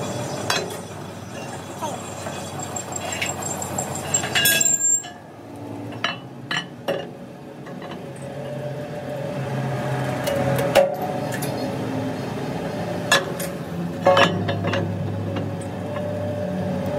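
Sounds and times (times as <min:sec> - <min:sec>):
steel plates clanking: 0:00.5 - 0:05.2, 0:13.1 - 0:15.0.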